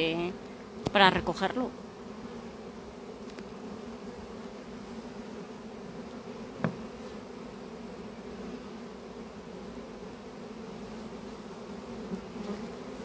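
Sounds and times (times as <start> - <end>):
bee swarm buzzing: 0.0 - 13.0
short knock: 6.6 - 6.8.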